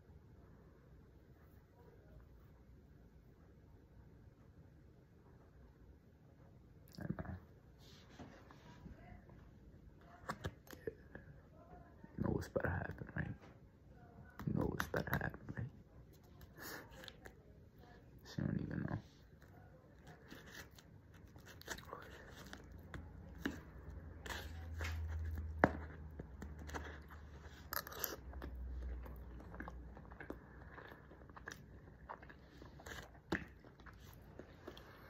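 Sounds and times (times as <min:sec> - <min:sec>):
chewing and biting food: 0:19.3 - 0:35.0.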